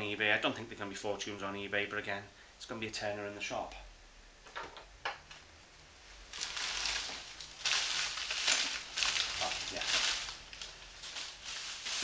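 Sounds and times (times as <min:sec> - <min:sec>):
packaging crinkling: 0:06.3 - 0:12.0.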